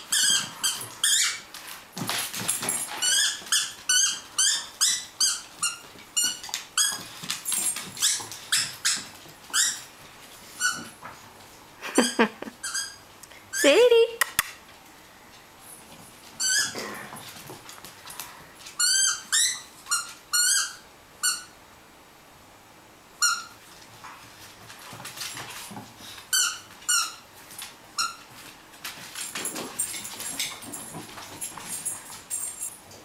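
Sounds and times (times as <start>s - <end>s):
squeaky ball squeaks: 0.0s - 1.5s, 2.6s - 9.9s, 10.6s - 10.9s, 12.6s - 13.8s, 16.4s - 16.8s, 18.8s - 21.6s, 23.2s - 23.6s.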